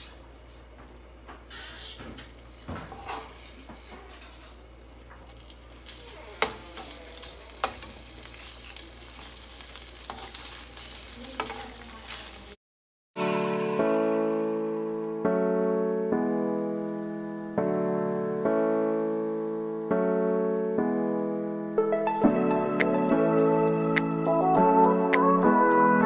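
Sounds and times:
bacon sizzling in a frying pan: 2.2s - 12.6s.

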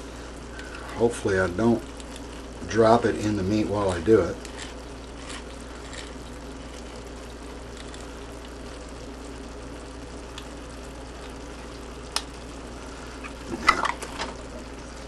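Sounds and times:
meat and vegetables sizzling in pan: 0.0s - 15.0s.

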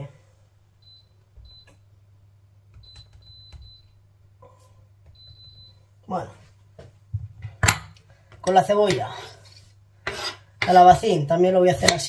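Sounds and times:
hob touch control beeps: 0.8s - 1.8s, 2.8s - 4.0s, 5.1s - 5.8s.

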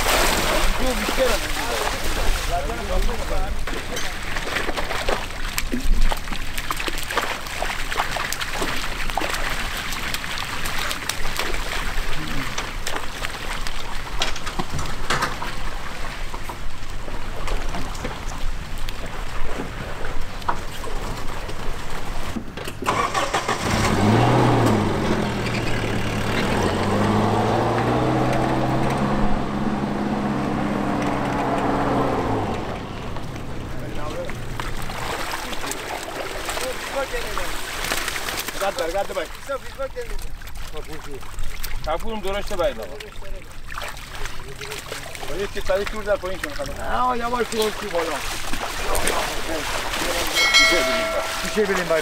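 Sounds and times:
water gushing: 0.0s - 21.2s, 30.2s - 52.0s
fish splashing into water: 0.0s - 29.5s, 30.2s - 52.0s
truck engine starting and running: 22.6s - 34.9s.

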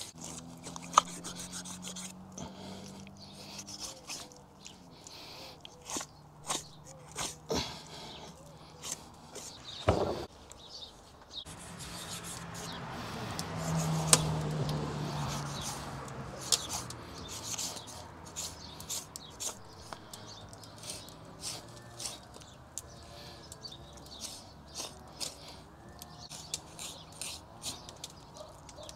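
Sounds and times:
knife slicing and scraping flesh: 0.0s - 4.8s, 5.7s - 7.5s, 13.4s - 19.8s, 20.8s - 22.4s, 24.1s - 28.8s
small birds chirping: 0.0s - 28.9s.

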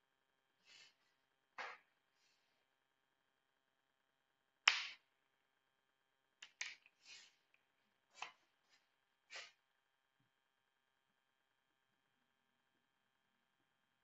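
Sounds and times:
short scratchy strokes: 7.0s - 7.4s, 8.2s - 9.6s.

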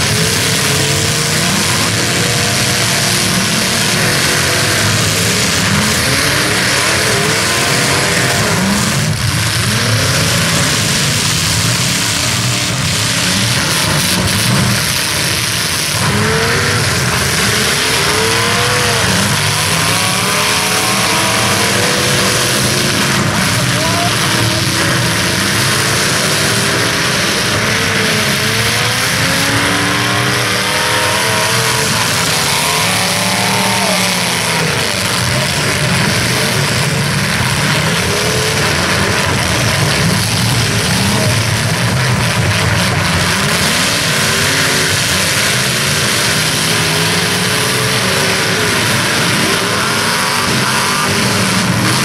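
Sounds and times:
car engines revving: 0.0s - 52.0s.

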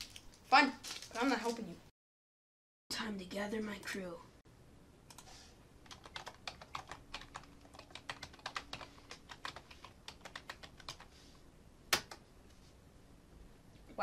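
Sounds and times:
computer keyboard typing: 5.1s - 11.1s.

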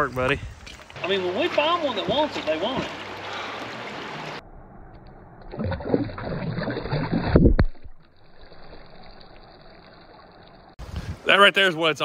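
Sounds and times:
water sloshing and splashing: 0.6s - 4.4s, 5.4s - 10.8s.

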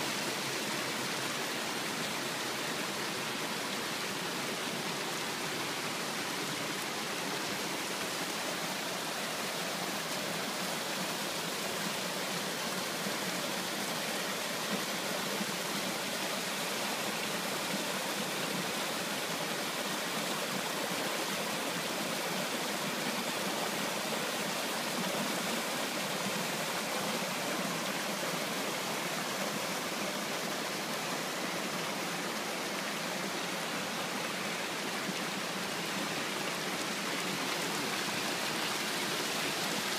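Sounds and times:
stream rushing over rocks: 0.0s - 39.9s.

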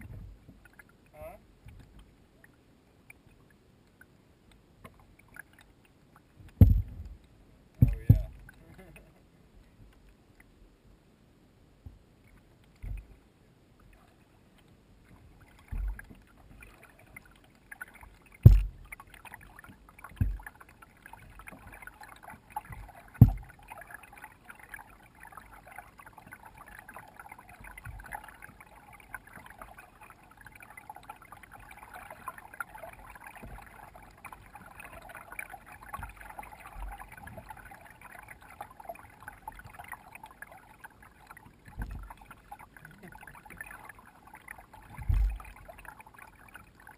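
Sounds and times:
dull knocks on kayak hull: 6.6s - 7.1s, 7.8s - 8.3s, 18.4s - 18.8s, 23.2s - 23.5s
paddle strokes splashing: 15.0s - 46.9s.

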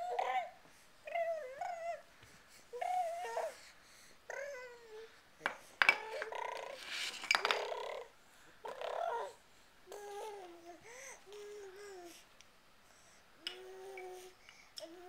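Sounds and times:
baby babbling: 0.0s - 2.0s, 2.7s - 3.7s, 4.3s - 5.1s, 7.6s - 12.2s
plastic cups clacking: 7.1s - 7.7s.

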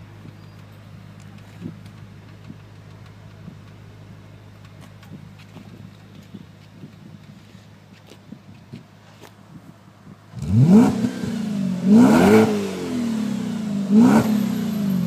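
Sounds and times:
deep engine idle rumble: 0.0s - 10.4s
car engine revving: 10.3s - 15.0s.

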